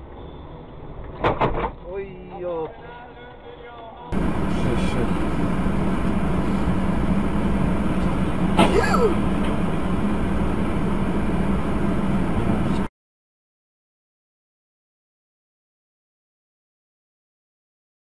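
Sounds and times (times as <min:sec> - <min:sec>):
car engine and road noise: 0:04.1 - 0:12.9.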